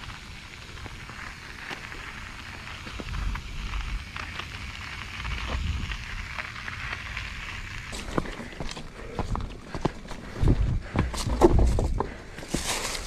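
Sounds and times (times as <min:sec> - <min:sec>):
bike tyres crunching on gravel: 0:00.0 - 0:13.0
bike tyres on leafy dirt trail: 0:00.0 - 0:13.0
wind buffeting microphone: 0:10.2 - 0:12.1.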